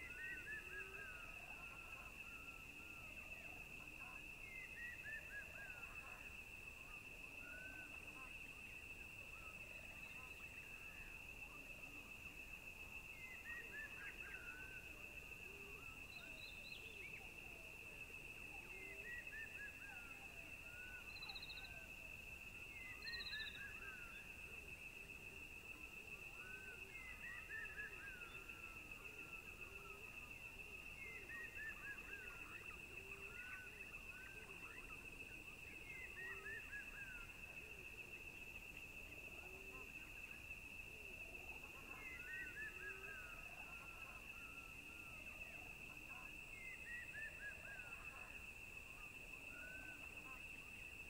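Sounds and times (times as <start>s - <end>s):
bird chirping: 22.8s - 24.2s.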